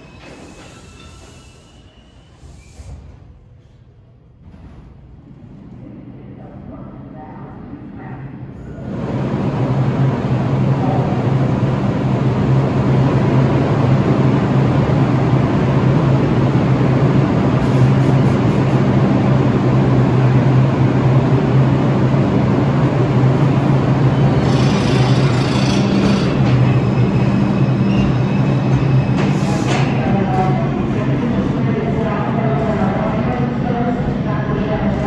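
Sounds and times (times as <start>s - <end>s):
train wheels rumbling on rail: 8.8s - 35.0s.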